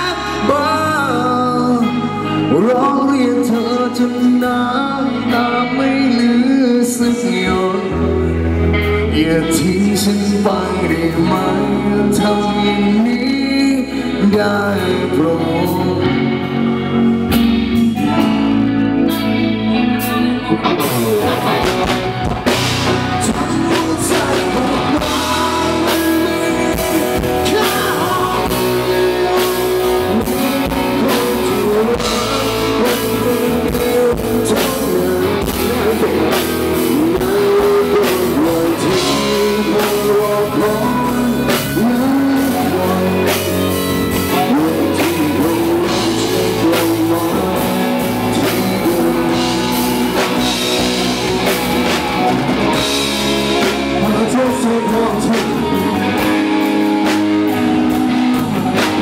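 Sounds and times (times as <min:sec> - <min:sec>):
bass guitar: 0:00.0 - 0:59.0
electric guitar: 0:00.0 - 0:59.0
person singing: 0:00.0 - 0:59.0
drum kit: 0:14.3 - 0:59.0.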